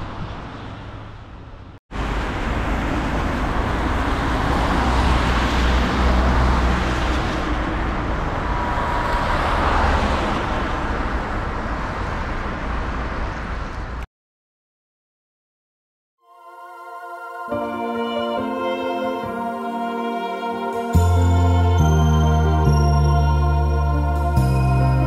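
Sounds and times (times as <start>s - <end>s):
vehicle traffic rushing: 1.9s - 13.6s, 16.5s - 25.0s.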